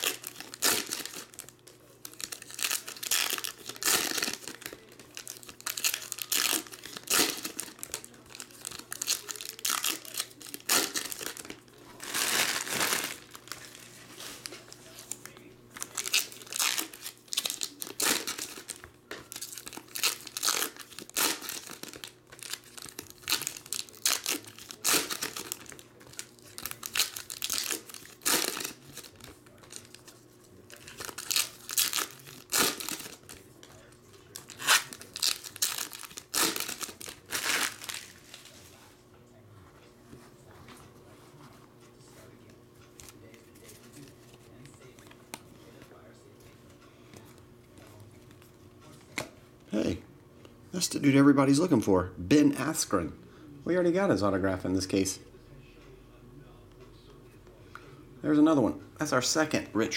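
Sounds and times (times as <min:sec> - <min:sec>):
foil wrappers crinkling and tearing: 0:00.0 - 0:38.6.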